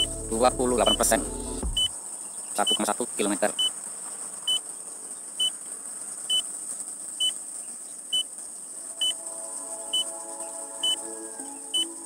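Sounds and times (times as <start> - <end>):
faint music: 0.0 - 2.0, 8.8 - 12.0
steady high hiss: 0.0 - 12.0
high-pitched warning beeps: 0.8 - 1.9, 2.6 - 2.9, 9.0 - 9.2, 10.8 - 11.0, 11.7 - 12.0.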